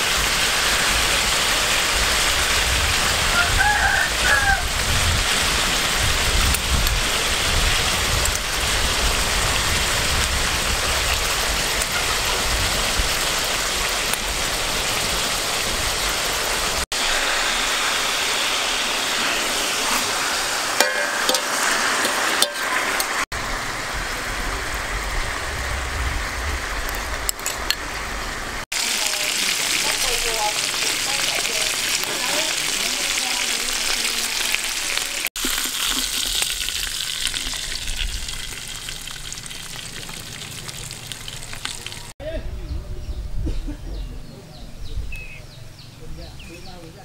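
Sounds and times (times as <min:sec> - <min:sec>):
chicken sizzling in pot: 0:00.0 - 0:42.2
metal spoon scraping pot: 0:20.8 - 0:23.1.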